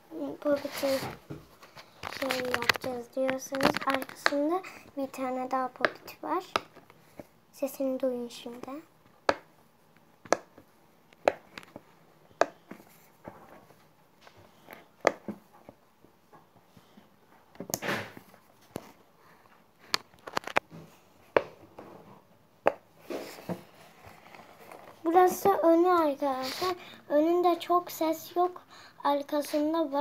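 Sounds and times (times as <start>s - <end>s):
notebook rustling: 0.5s - 4.5s, 19.9s - 20.7s, 23.0s - 25.7s.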